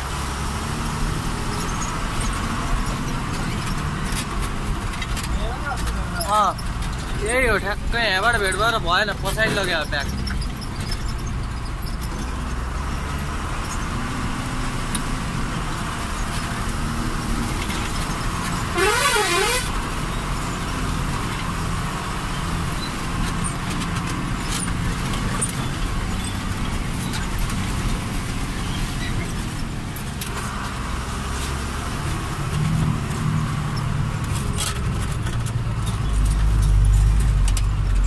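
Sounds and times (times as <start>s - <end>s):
truck engine running: 0.0s - 38.0s
warbling horn blast: 18.7s - 19.7s.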